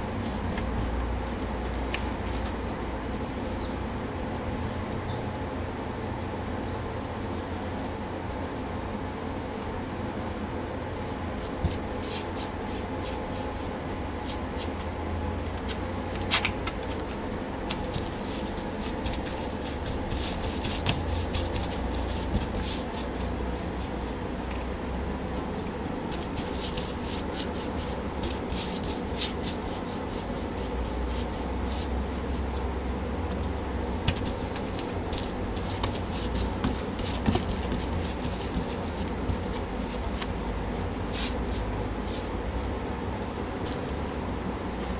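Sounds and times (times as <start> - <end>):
low background hum: 0.0 - 44.9
paintbrush swishing on door: 11.0 - 14.9, 17.7 - 24.5, 25.8 - 32.7, 34.1 - 44.2.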